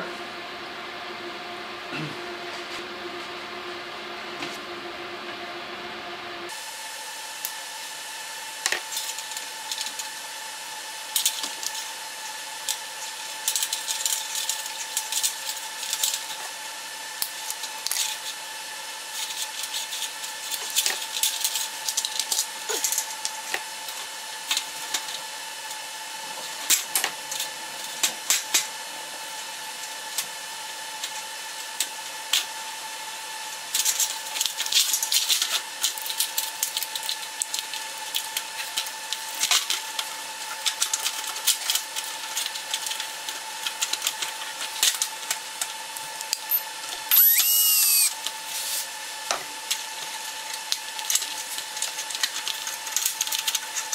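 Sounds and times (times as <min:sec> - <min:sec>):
thin high tone: 0:46.5 - 0:48.2.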